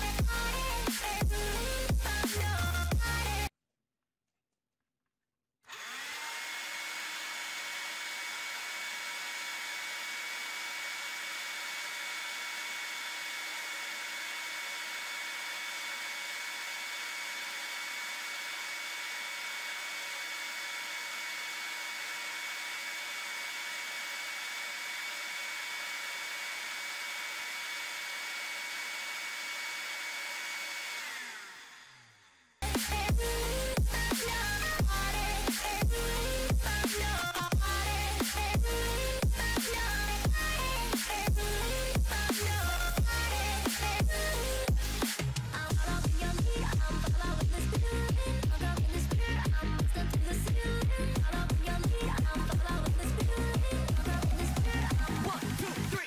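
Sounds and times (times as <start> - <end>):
vacuum cleaner motor whine: 5.7 - 32.3.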